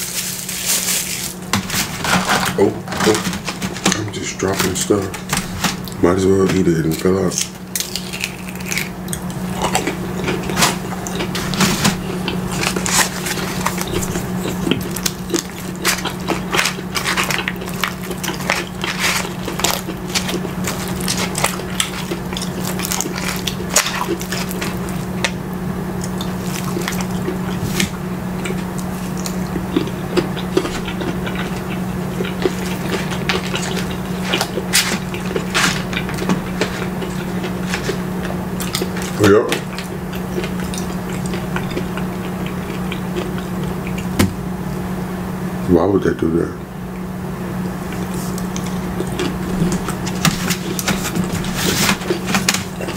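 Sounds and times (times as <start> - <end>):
steady low hum: 0.0 - 52.9
chewing and wet mouth sounds: 3.9 - 44.4, 47.6 - 52.9.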